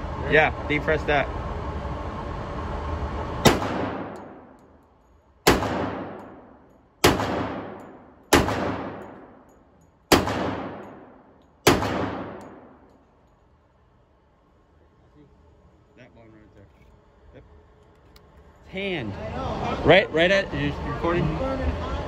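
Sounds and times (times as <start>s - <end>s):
pistol shots echoing indoors: 3.4s - 4.6s, 5.4s - 13.0s.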